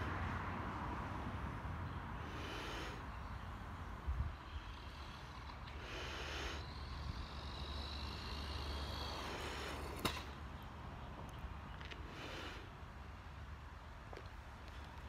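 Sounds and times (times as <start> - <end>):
electric motor whining: 4.1 - 10.3.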